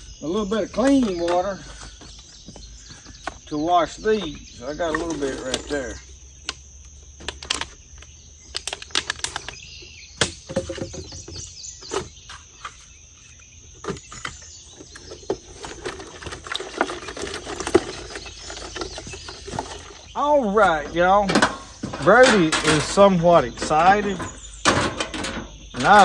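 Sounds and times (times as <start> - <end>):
insect chirring: 0.0 - 26.0
clicks and knocks handling fish: 13.8 - 26.0.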